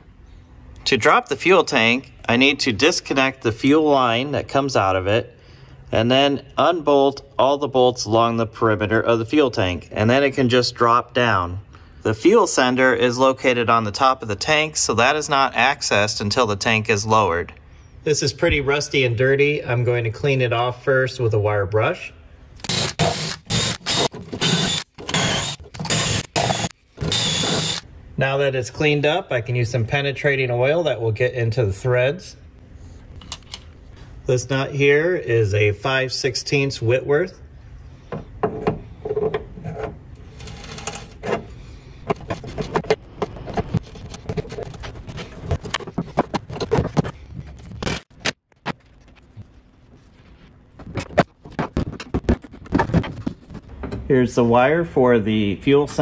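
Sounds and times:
drill spinning wire brush on metal: 22.7 - 27.8.

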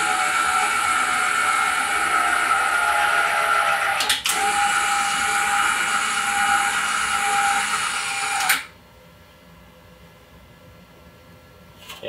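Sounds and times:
electric motor whine: 0.0 - 8.7.

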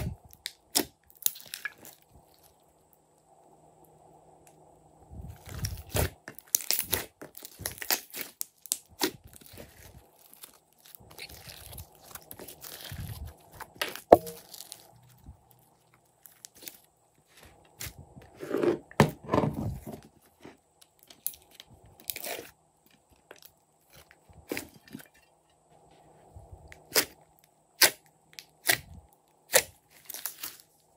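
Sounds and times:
slime squelching: 0.0 - 2.6, 5.3 - 18.0.

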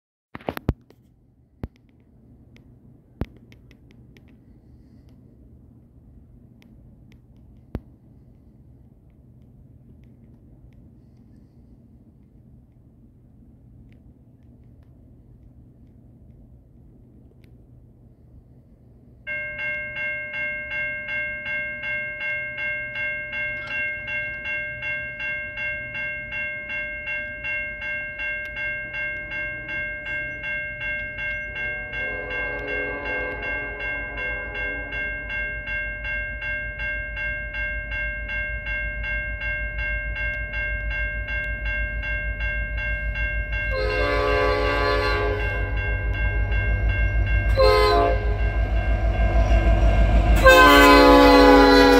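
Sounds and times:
low rumble of train: 0.4 - 51.9
railway crossing bell ringing: 19.2 - 51.9
locomotive horn blast: 31.9 - 35.4, 43.7 - 46.5, 47.5 - 51.9.

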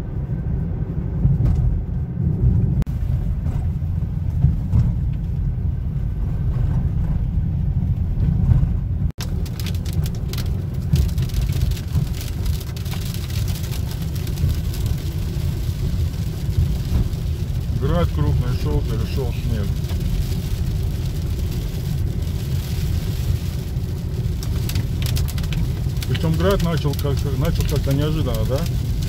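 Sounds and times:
car tyres and engine rumble: 0.0 - 29.0
hail striking car: 9.1 - 29.0.

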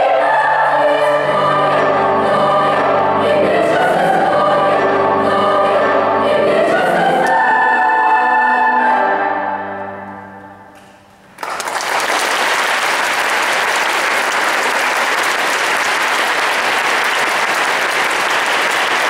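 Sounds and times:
audience applauding: 11.3 - 19.0.

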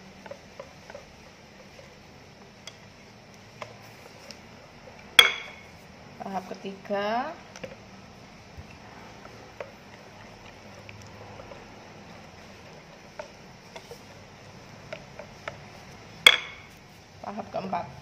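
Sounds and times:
whisk stirring batter: 0.0 - 5.1, 9.0 - 16.1.

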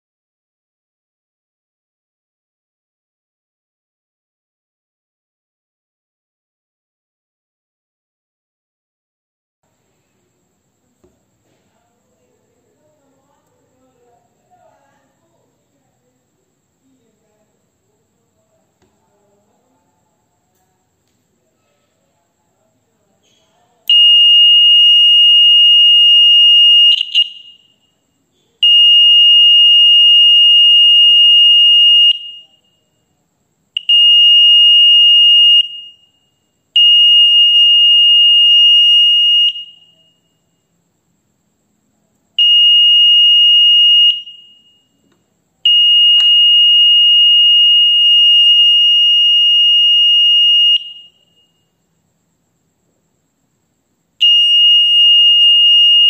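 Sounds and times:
piezo buzzer high-pitched tone: 23.9 - 27.9, 28.6 - 32.7, 33.8 - 40.7, 42.4 - 51.8, 54.2 - 56.0.

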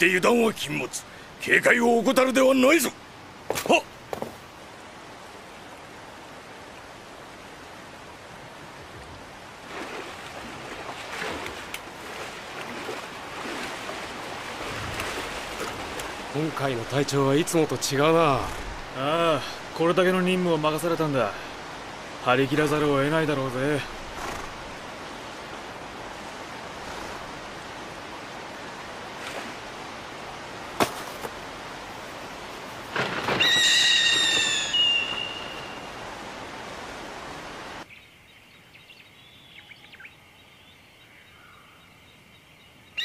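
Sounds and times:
flowing water rushing: 0.0 - 37.9
water splashing as horses wade: 6.6 - 19.0, 22.4 - 30.8.

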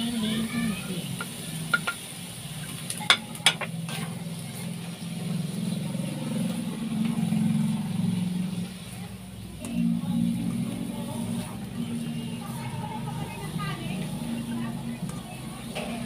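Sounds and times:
stir-frying in a wok: 0.0 - 9.6
spatula knocking on plate and wok: 1.2 - 2.0
steady low hum: 9.3 - 16.0.

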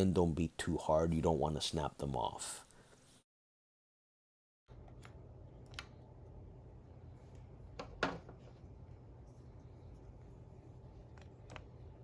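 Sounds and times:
low steady hum: 4.7 - 12.0.

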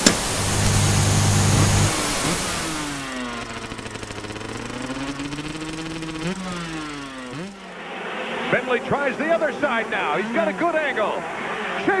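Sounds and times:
static hiss with low buzz: 0.0 - 3.1
motorcycle engine revving: 0.0 - 7.9.

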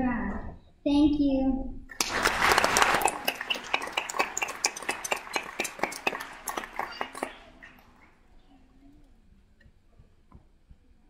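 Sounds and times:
audience applauding: 2.0 - 8.2.

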